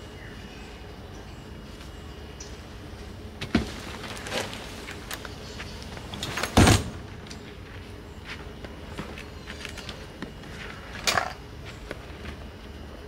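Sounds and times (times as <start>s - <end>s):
tent landing with heavy thump: 3.4s - 4.6s, 6.3s - 7.1s.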